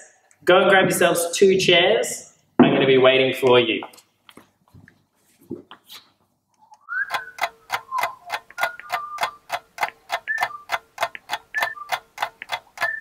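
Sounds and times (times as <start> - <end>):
ticking clock beat: 7.0 - 13.0.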